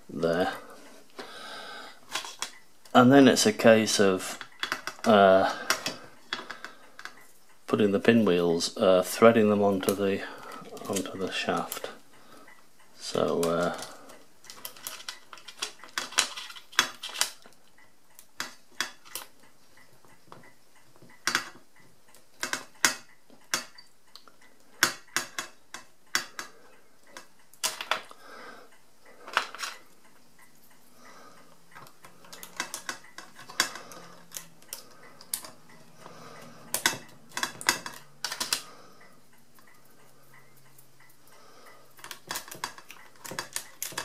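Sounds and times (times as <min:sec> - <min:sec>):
small metallic clicks and clinks: 0:31.7 - 0:44.0.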